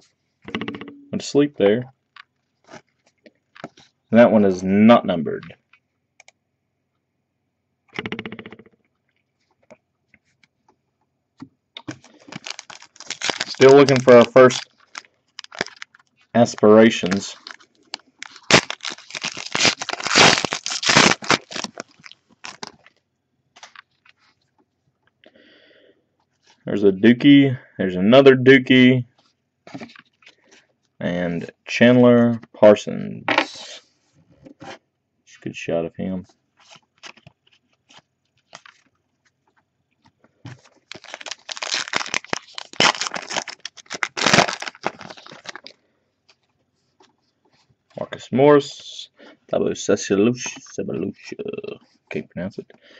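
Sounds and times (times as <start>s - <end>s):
foil wrapper crinkling and tearing: 11.8s - 22.9s, 40.5s - 45.8s.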